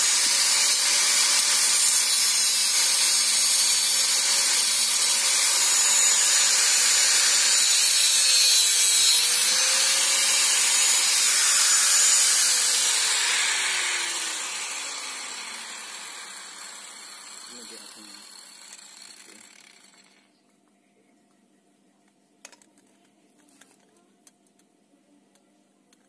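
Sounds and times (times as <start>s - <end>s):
angle grinder grinding metal: 0.0s - 20.2s.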